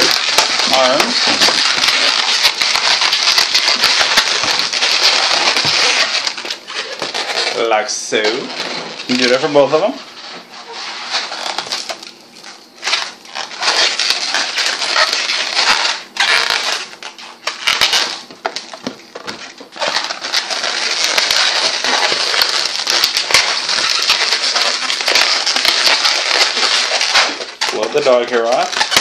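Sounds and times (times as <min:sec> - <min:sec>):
balloons rubbing and crackling: 0:00.0 - 0:29.0.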